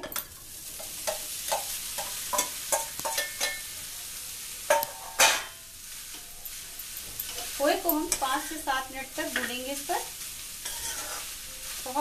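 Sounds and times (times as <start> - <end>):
light sizzle in hot pan: 0.0 - 12.0
metal spoon scraping steel tin: 10.6 - 11.3.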